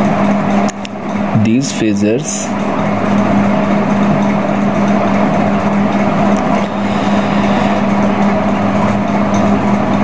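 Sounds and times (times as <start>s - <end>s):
steady machine hum: 0.0s - 10.0s.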